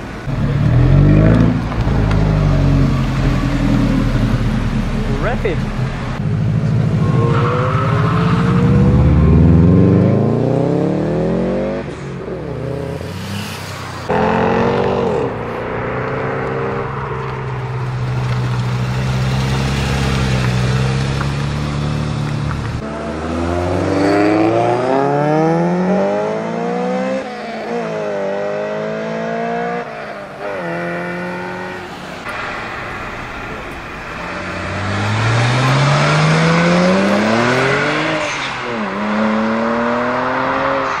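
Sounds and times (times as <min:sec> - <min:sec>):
car accelerating hard through gears: 0:34.4 - 0:41.0.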